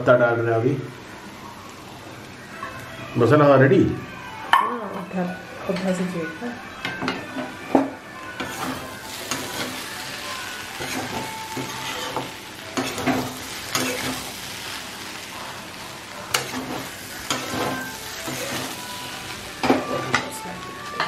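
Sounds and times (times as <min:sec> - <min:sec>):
food sizzling: 0:00.0 - 0:21.0
metal spatula scraping a pan: 0:10.7 - 0:20.0.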